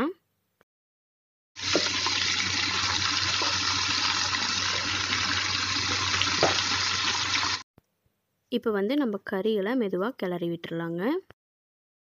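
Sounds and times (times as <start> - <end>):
chicken sizzling in oil: 1.6 - 7.6.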